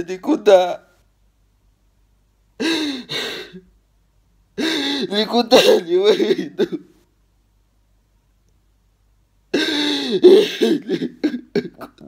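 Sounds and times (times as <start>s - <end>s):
man sobbing: 2.6s - 3.7s, 4.6s - 6.9s, 9.5s - 12.0s.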